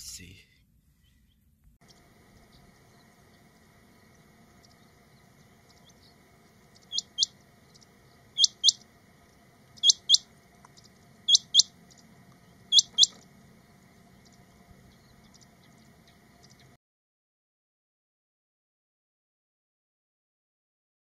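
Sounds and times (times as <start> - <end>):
quail calling double whistles: 6.8 - 7.4, 8.4 - 8.8, 9.8 - 10.3, 11.3 - 11.8, 12.7 - 13.2.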